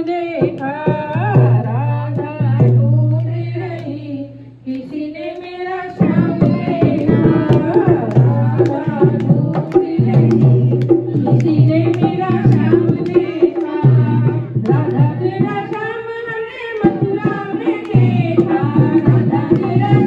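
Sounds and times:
hand drum beat: 0.0s - 4.1s, 4.8s - 20.0s
group singing over loudspeaker: 3.6s - 20.0s
hand-clapping: 4.7s - 16.0s, 16.6s - 20.0s.

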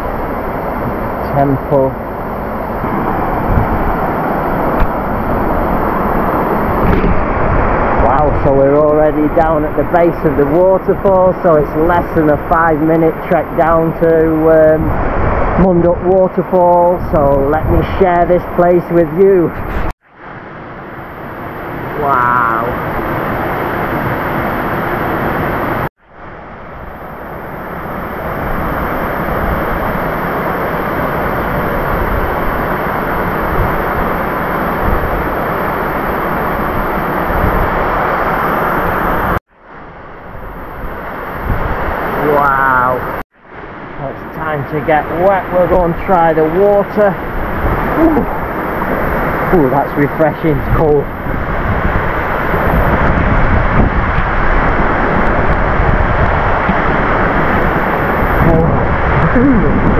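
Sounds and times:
waterfall rushing: 41.1s - 53.3s.

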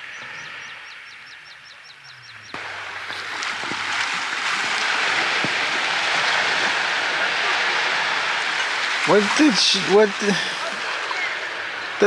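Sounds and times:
loud steady rushing noise: 2.6s - 12.0s.

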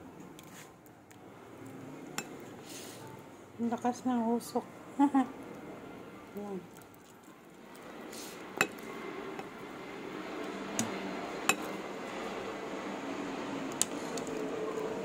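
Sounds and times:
steady background noise: 0.0s - 15.0s
dishes and spoon clinking: 8.6s - 9.5s.

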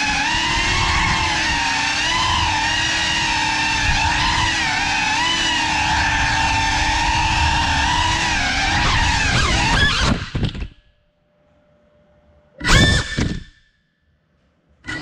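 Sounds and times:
drone motors and propellers whining: 0.0s - 10.9s, 12.6s - 13.6s.

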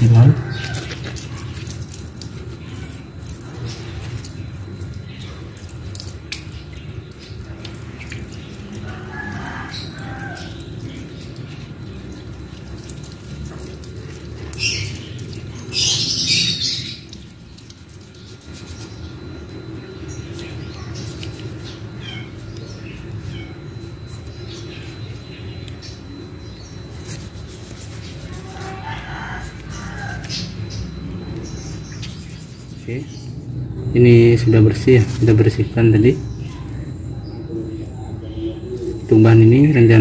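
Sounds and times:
garden hose water splashing: 0.0s - 25.9s, 26.6s - 36.4s.

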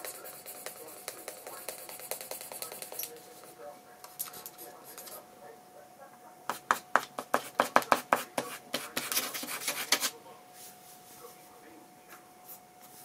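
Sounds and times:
pen scratching on paper: 0.0s - 3.5s, 4.1s - 5.2s, 6.5s - 10.1s.

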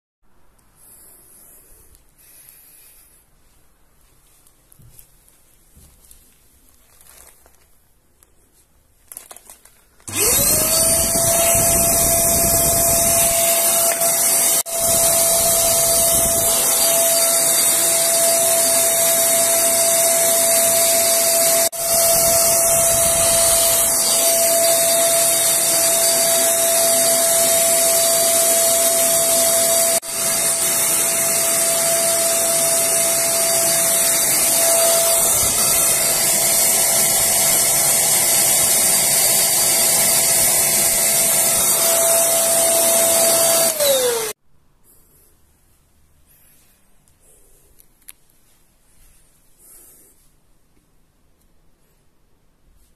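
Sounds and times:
vacuum cleaner running: 10.0s - 44.4s.

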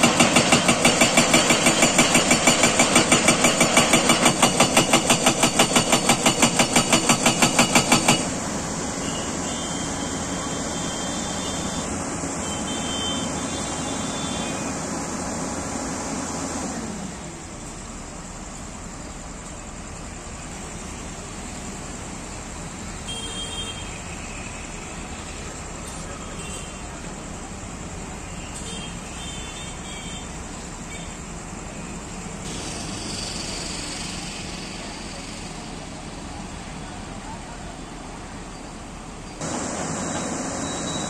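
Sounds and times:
excavator engine drone: 0.0s - 28.5s, 30.4s - 41.0s
hydraulic hiss: 32.0s - 36.8s.

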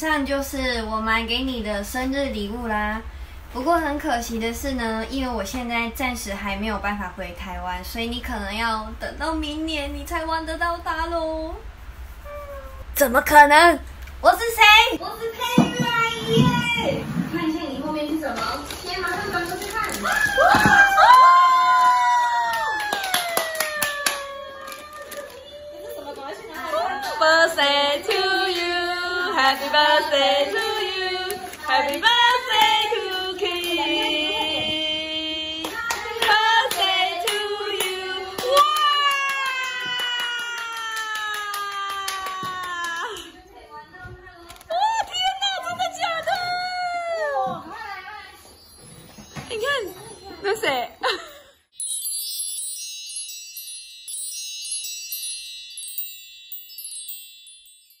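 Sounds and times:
hand claps: 21.8s - 25.4s, 35.6s - 43.4s
woman singing: 26.8s - 38.6s
wind chimes tinkling: 47.8s - 58.0s.

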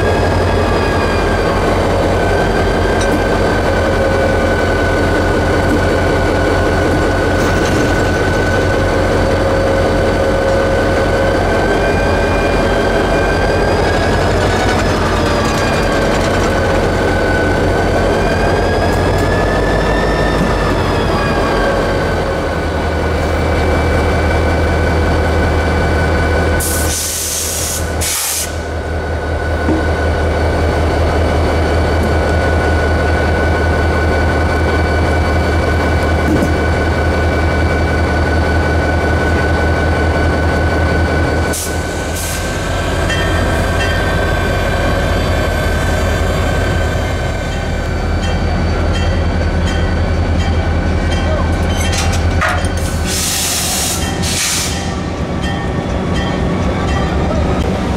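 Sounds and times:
diesel locomotive drone and whine: 0.0s - 57.9s.

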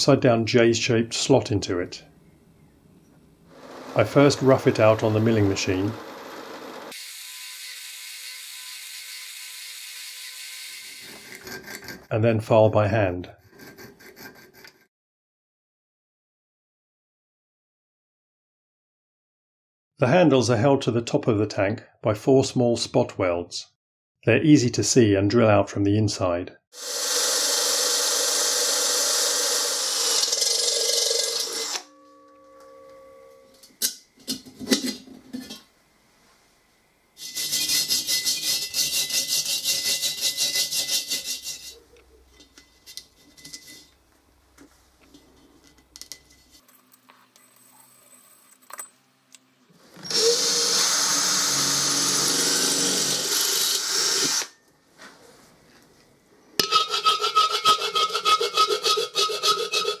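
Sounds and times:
cordless drill drilling steel: 26.8s - 31.9s, 50.0s - 54.5s
file rasping on ringing steel: 29.5s - 33.7s, 37.2s - 41.8s, 56.6s - 60.0s.

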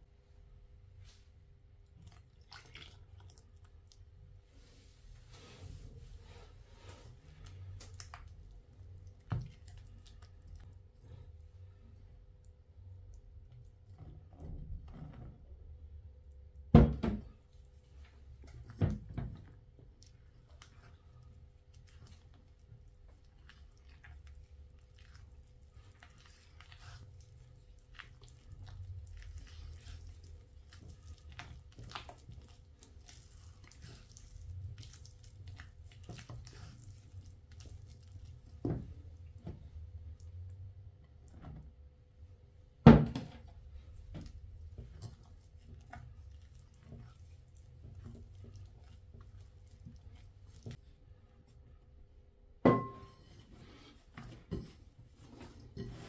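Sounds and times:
spatula stirring thick batter: 1.8s - 16.0s, 17.2s - 40.3s, 43.4s - 51.6s, 53.3s - 56.0s.

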